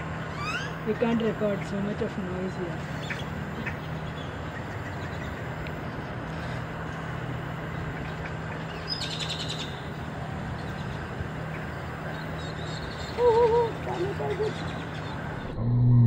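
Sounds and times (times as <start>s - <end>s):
low hum: 0.0s - 16.0s
bird chattering call: 0.2s - 1.7s, 2.8s - 5.6s, 7.8s - 10.0s.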